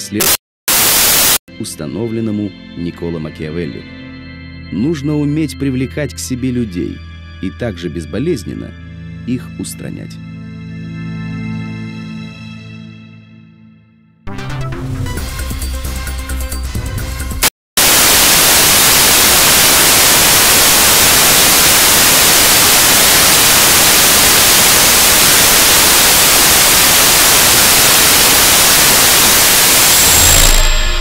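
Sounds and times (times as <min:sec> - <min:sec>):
loud static hiss: 0:00.0 - 0:01.4, 0:17.8 - 0:31.0.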